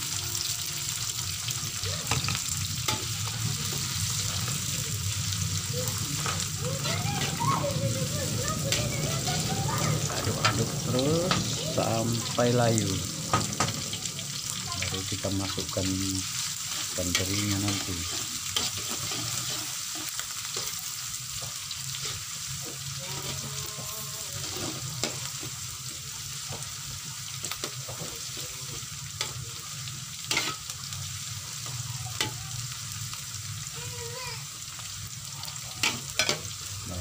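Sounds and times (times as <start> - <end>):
vegetables sizzling in oil: 0.0 - 37.0
spatula scraping a pan: 16.2 - 25.6.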